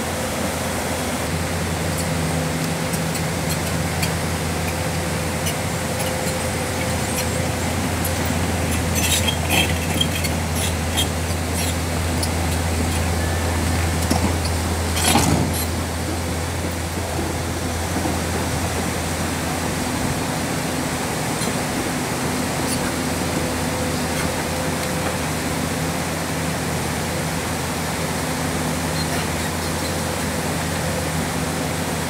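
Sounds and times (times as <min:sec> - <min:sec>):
excavator diesel engine humming: 0:00.0 - 0:32.0.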